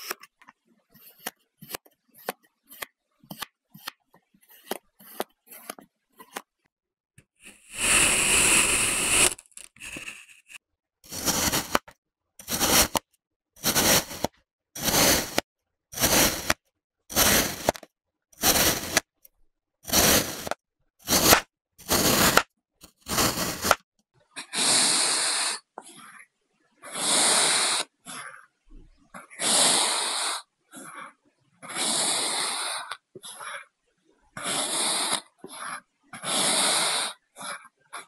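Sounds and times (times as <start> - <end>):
kinetic sand crunchy cutting: 11.1 - 13.0, 13.6 - 15.4, 16.0 - 17.8, 18.4 - 19.1, 19.9 - 22.4, 23.0 - 23.8.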